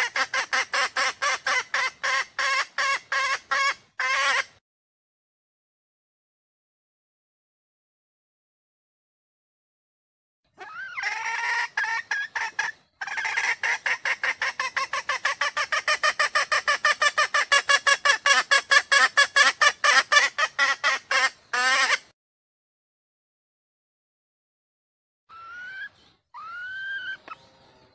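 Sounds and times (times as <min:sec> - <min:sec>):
hen junglefowl calling: 0:00.0 - 0:04.6, 0:10.6 - 0:22.1, 0:25.3 - 0:27.8.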